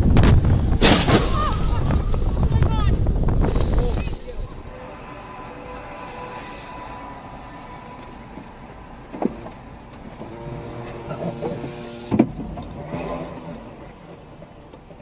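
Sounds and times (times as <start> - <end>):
thud: 0.0 - 2.3
loud crash bang: 0.0 - 2.5
road noise: 0.0 - 15.0.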